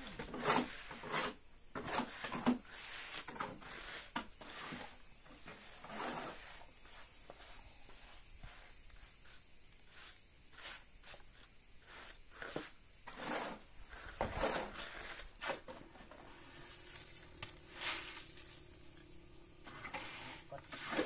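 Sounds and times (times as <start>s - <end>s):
shovel scraping gravel: 0.0s - 7.1s, 11.8s - 21.0s.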